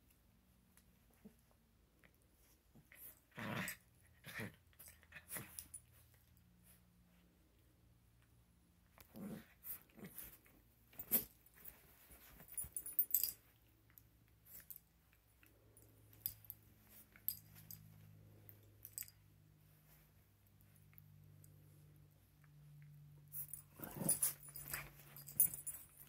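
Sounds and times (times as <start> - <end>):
rustling: 9.0 - 22.4, 23.2 - 26.0.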